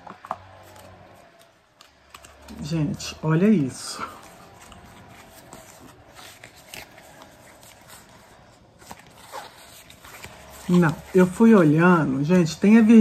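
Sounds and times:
cards clicking and rustling: 0.0s - 13.0s
faint lawn mower running: 7.0s - 13.0s.

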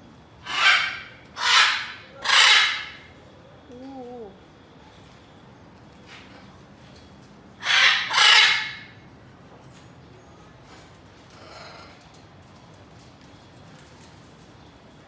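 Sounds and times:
macaw squawking: 0.4s - 3.1s, 7.6s - 8.9s
faint macaw call: 0.4s - 3.2s, 7.6s - 9.0s.

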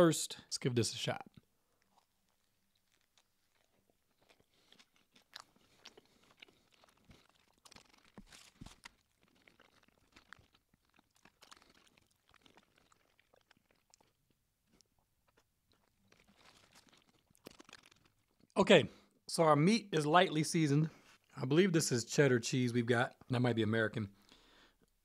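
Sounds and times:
person chewing food: 1.3s - 18.6s.

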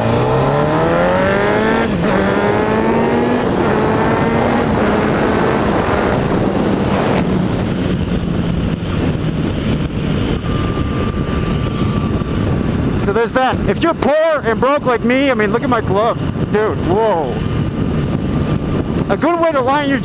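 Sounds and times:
motorcycle engine accelerating: 0.0s - 20.0s
wind rushing over microphone: 0.0s - 20.0s.

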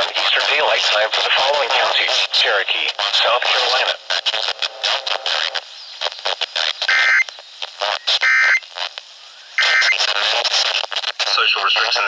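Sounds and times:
radio static crackling: 0.0s - 12.0s
buzzy data bursts: 1.8s - 8.9s, 9.6s - 12.0s.

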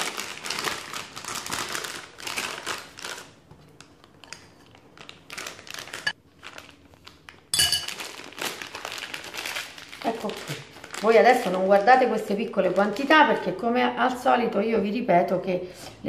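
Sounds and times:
plastic piping bag crinkling: 0.0s - 13.5s
spoon clinking on bowl: 7.6s - 8.0s.

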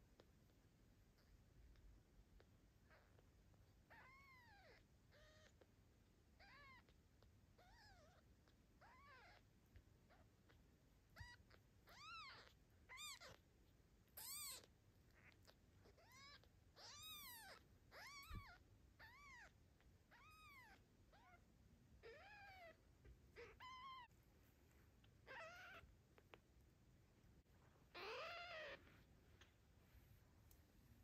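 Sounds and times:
kitten mewing: 3.9s - 5.6s, 7.6s - 8.2s, 8.8s - 9.4s, 11.1s - 13.4s, 14.2s - 19.5s, 22.0s - 24.1s, 25.2s - 25.9s, 27.9s - 28.8s.

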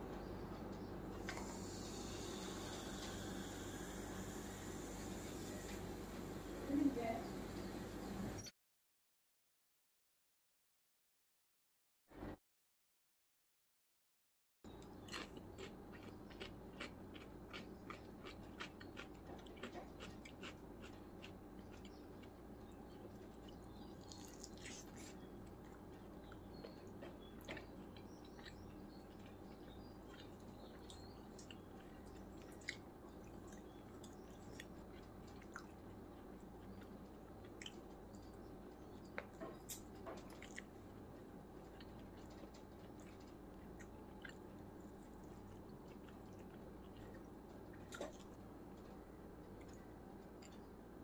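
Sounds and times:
steady low hum: 0.0s - 8.5s, 14.7s - 51.0s
biting and chewing: 14.7s - 50.8s.

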